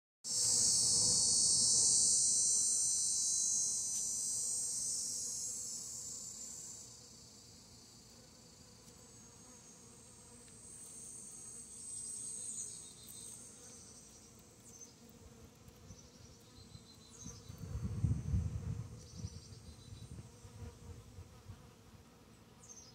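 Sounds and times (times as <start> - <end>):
high insect trill: 0.3 - 15.2.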